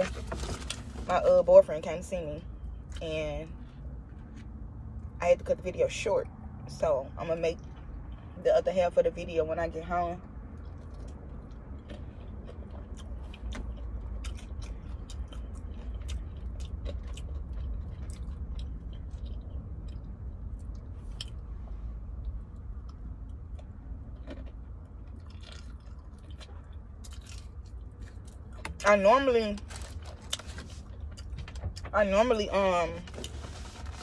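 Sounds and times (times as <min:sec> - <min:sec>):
steady low hum: 0:00.0 - 0:34.0
chewing and biting food: 0:10.4 - 0:21.5, 0:22.1 - 0:28.8, 0:29.7 - 0:31.9.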